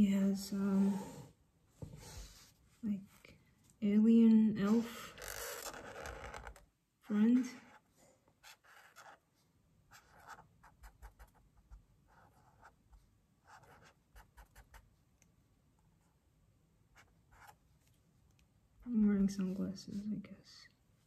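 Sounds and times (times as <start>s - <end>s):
marker drawing on paper: 4.6s - 6.6s, 7.3s - 7.8s, 8.4s - 9.2s, 9.9s - 11.4s, 12.1s - 12.8s, 13.5s - 14.8s, 17.0s - 17.6s.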